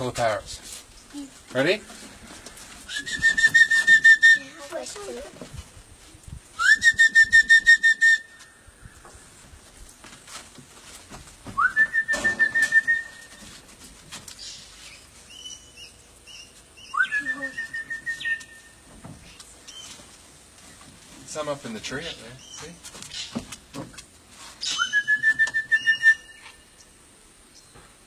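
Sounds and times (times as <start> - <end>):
whistled warbling call: 2.9 - 4.6, 6.6 - 8.6, 11.6 - 13.4, 15.3 - 18.8, 24.6 - 26.9.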